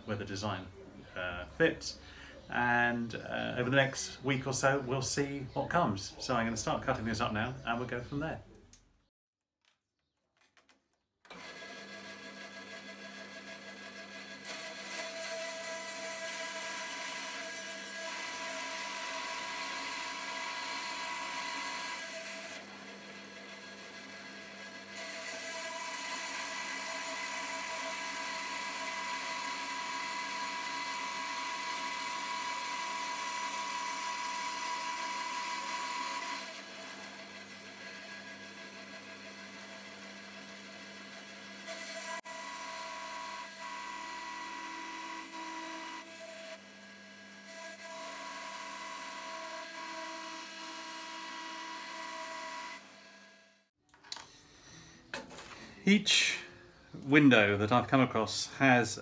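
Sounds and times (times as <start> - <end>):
bandsaw cutting whine: 12.3 - 53.6.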